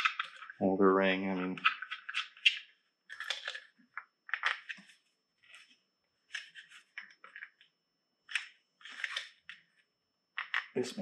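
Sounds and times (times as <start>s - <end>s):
plastic parts clicking and rattling: 0.0s - 0.6s, 1.4s - 4.9s, 10.4s - 10.8s.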